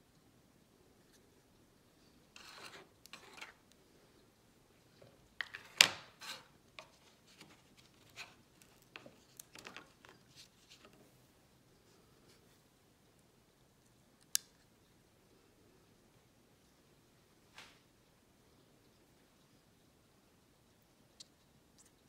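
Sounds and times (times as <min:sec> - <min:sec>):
filters rubbing and scraping in foam: 0:02.3 - 0:03.6.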